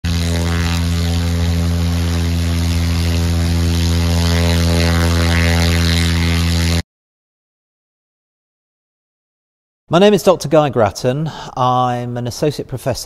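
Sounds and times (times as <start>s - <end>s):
electric motor and propeller hum: 0.0s - 6.8s.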